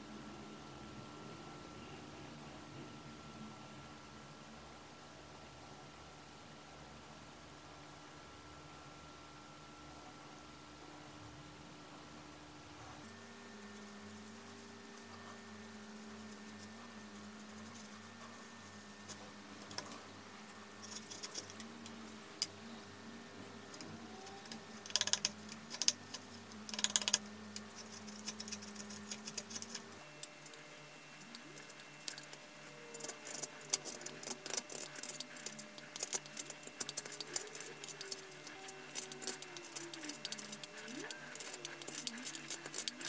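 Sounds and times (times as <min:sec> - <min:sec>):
faint steady hum: 0:00.0 - 0:43.0
gouge cutting wood crackling: 0:31.2 - 0:43.0.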